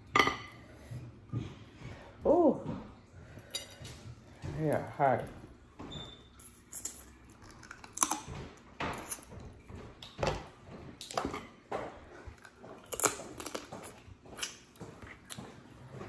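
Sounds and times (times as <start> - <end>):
crawfish shells cracking: 7.4 - 8.3.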